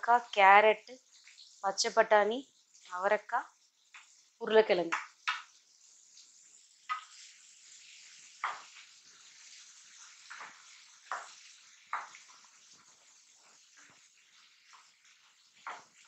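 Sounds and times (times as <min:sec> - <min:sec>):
vegetables sizzling in hot oil: 0:00.0 - 0:16.0
spatula scraping a pan: 0:05.6 - 0:16.0.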